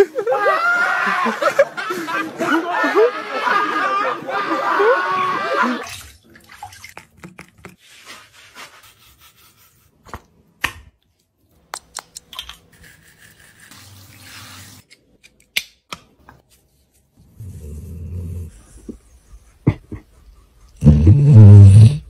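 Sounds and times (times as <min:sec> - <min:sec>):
water moving in bathtub: 0:05.2 - 0:08.3.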